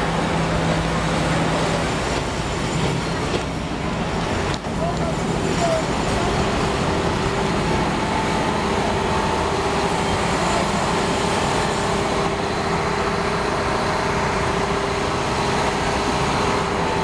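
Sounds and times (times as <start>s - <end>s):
diesel railcar engine drone: 0.0s - 17.0s.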